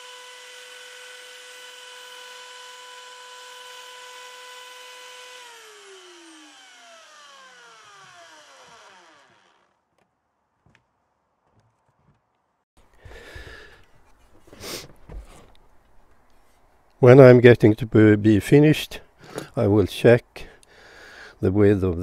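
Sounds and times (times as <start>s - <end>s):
belt sander whining: 0.0s - 9.8s.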